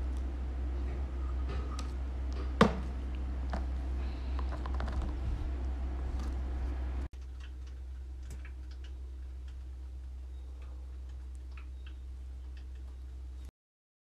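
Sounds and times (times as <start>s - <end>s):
steady low hum: 0.0s - 13.5s
light clicks and ticks: 7.2s - 13.5s.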